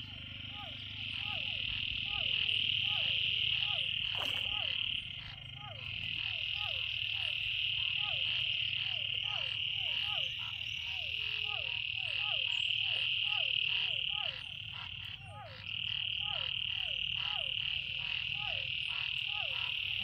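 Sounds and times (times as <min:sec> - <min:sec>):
frogs high-pitched trill: 0:00.0 - 0:20.0.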